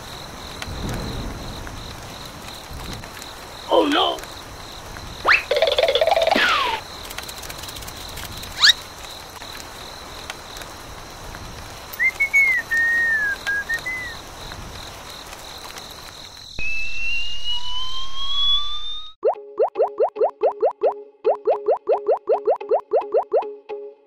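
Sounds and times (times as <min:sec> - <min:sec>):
whistle sound effects: 0:05.2 - 0:05.7, 0:12.0 - 0:14.2, 0:16.6 - 0:20.0.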